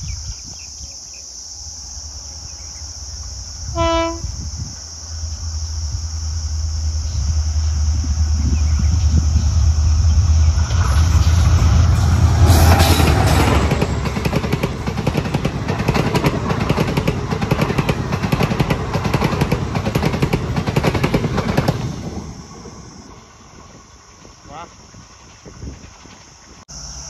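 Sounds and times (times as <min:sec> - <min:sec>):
diesel locomotive engine drone: 0:01.1 - 0:27.0
train wheels clattering on rails: 0:10.5 - 0:22.3, 0:23.5 - 0:26.6.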